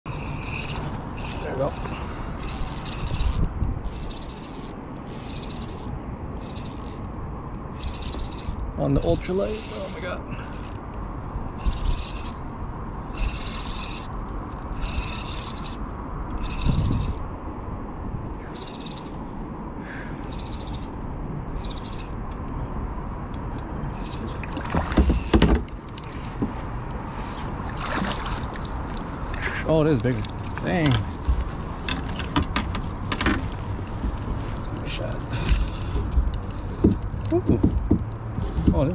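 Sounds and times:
fishing reel whirring: 0.1 - 7.1, 7.7 - 10.8, 11.6 - 12.5, 13.1 - 15.8, 16.4 - 17.2, 18.5 - 19.2, 20.2 - 22.2, 23.9 - 25.4
handling bumps: 30.0 - 38.9.

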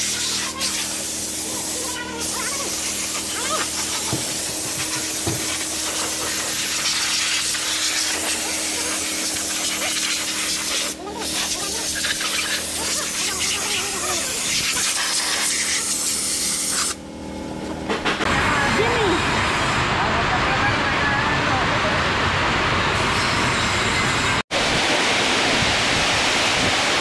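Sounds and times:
spray gun hissing: 0.0 - 17.0.

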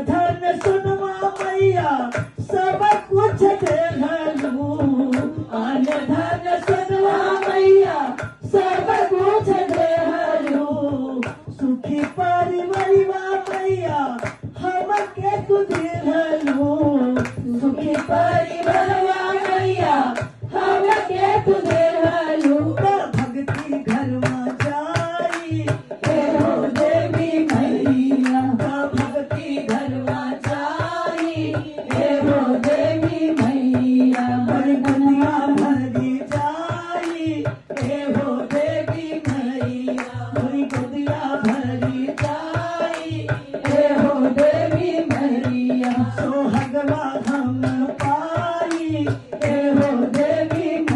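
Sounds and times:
hand clapping: 0.0 - 50.9
hand drum beat: 0.0 - 50.9
women singing devotional song: 0.0 - 50.9.

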